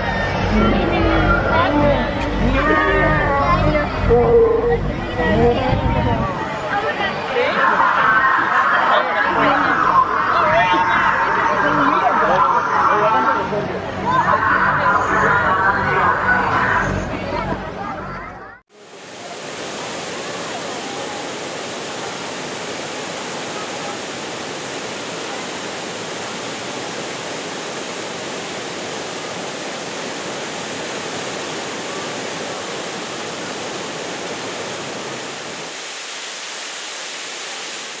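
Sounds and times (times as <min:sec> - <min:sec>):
waterfall pouring over rocks: 0:18.7 - 0:38.0.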